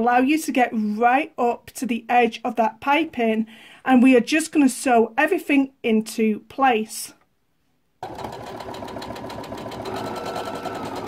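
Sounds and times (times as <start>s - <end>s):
sewing machine stitching: 8.0s - 11.0s.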